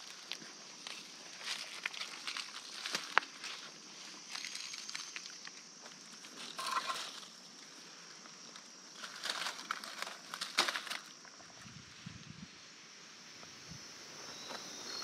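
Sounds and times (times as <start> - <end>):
footsteps crunching dry leaves: 0.0 - 7.4, 8.9 - 11.3.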